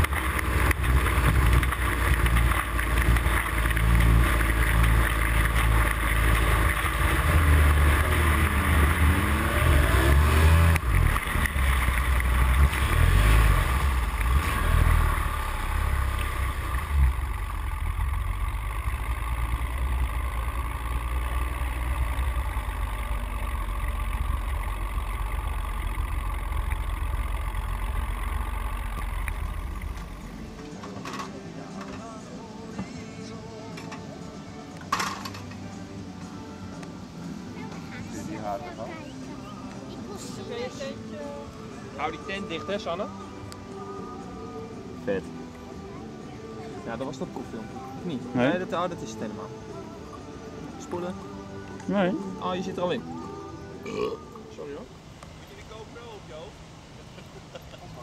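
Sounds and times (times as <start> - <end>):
outboard motor running fast: 0.0 - 30.5.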